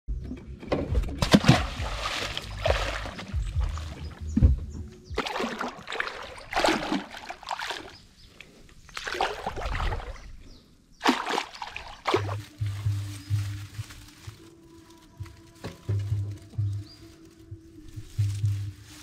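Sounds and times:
water splashing and sloshing: 0:00.7 - 0:17.2.

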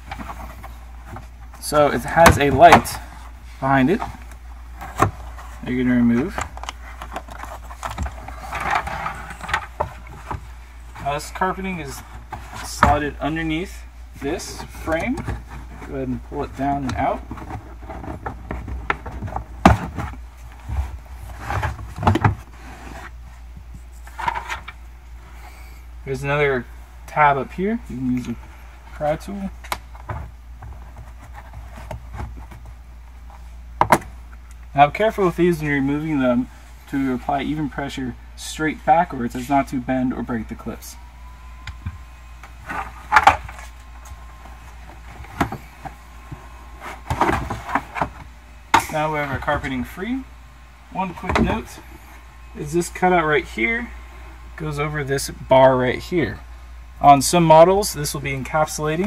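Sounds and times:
carpet rustling: 0:00.0 - 0:37.9, 0:38.6 - 0:54.0
carpet rubbing: 0:40.6 - 0:49.8.

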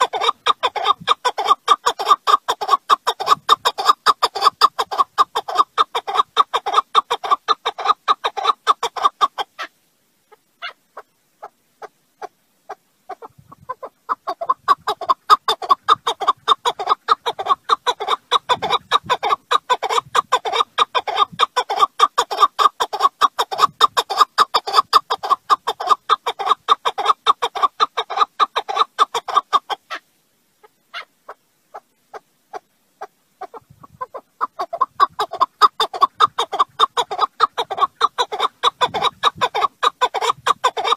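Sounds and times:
partridge chuckling calls: 0:00.0 - 0:09.7, 0:10.3 - 0:30.0, 0:30.6 - 0:40.9.

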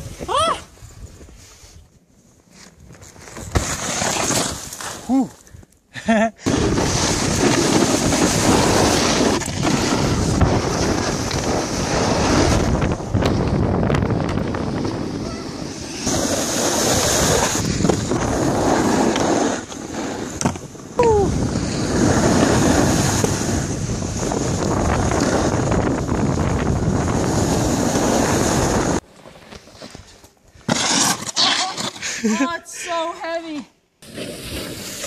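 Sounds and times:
snowboards scraping over snow: 0:02.5 - 0:05.1, 0:06.4 - 0:32.6, 0:34.0 - 0:35.0
wind buffeting microphone: 0:06.5 - 0:18.8, 0:20.9 - 0:29.0.

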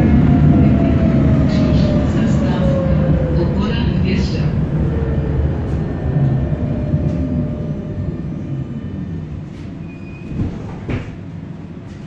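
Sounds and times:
tram rumbling on rails: 0:00.0 - 0:12.0
high squeal: 0:09.8 - 0:10.4.

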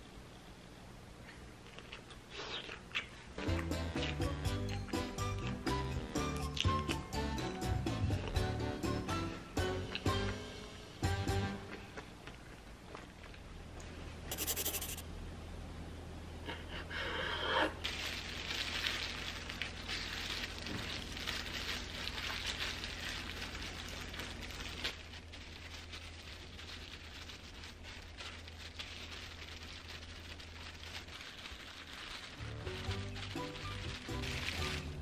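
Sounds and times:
plastic gloves crinkling: 0:17.8 - 0:35.0.

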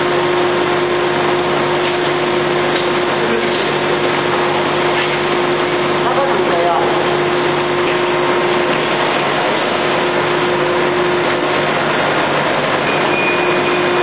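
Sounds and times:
factory machine drone: 0:00.0 - 0:14.0
held tone: 0:12.8 - 0:14.0.

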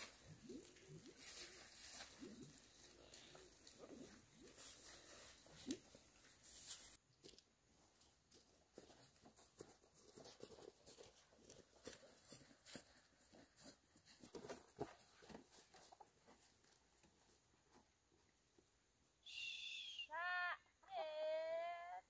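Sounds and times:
footsteps on dirt path: 0:00.0 - 0:16.6.

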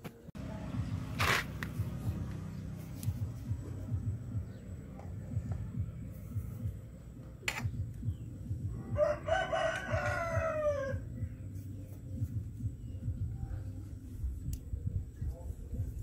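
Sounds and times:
low rumble: 0:00.4 - 0:09.2
rooster crowing: 0:08.8 - 0:11.2.

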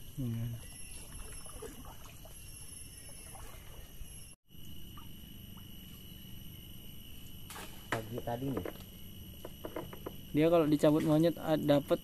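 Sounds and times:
faint water trickling: 0:00.0 - 0:06.6
high insect drone: 0:00.0 - 0:12.0
small water splashes: 0:00.6 - 0:04.3.

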